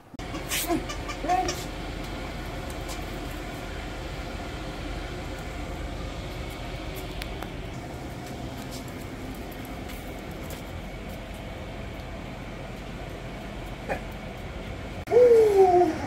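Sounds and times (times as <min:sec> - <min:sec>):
steady background hum: 0:00.0 - 0:16.0
puppy whining: 0:15.1 - 0:16.0.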